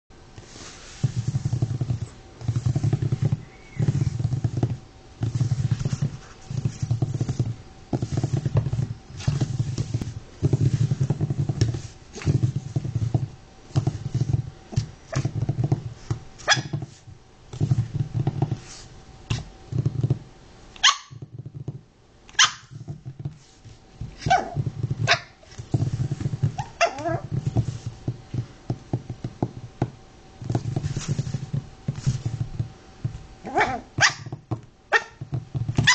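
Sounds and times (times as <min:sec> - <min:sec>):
puppy yipping: 0:20.8 - 0:21.2, 0:22.4 - 0:22.7, 0:26.6 - 0:27.2, 0:33.5 - 0:34.3
puppy growling: 0:26.6 - 0:27.3, 0:33.4 - 0:34.0.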